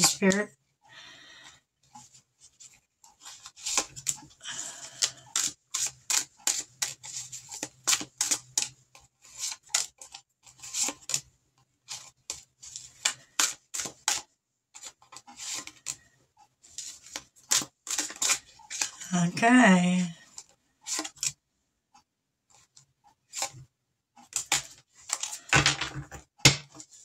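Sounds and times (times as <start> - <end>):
cards being shuffled: 2.0 - 11.3, 11.9 - 16.0, 16.7 - 19.0, 20.3 - 21.4, 24.2 - 27.0.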